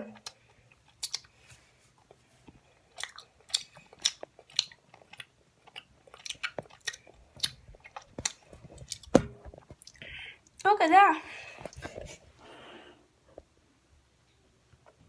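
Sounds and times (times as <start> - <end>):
person chewing candy: 0.1 - 10.6.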